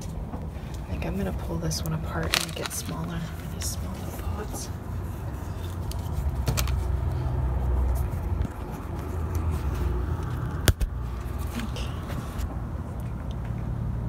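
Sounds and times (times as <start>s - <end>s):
hands handling camera: 5.3s - 7.0s.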